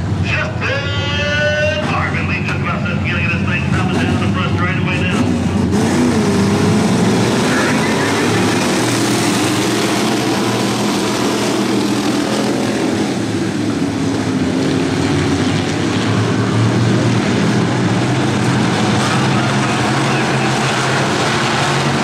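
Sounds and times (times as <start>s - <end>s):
racing car engines roaring: 0.0s - 22.0s.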